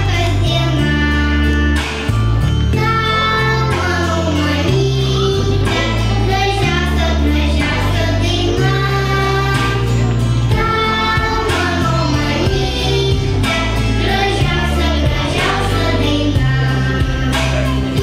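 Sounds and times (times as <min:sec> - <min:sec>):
stepping bass line: 0:01.6 - 0:18.0
person singing: 0:10.5 - 0:18.0.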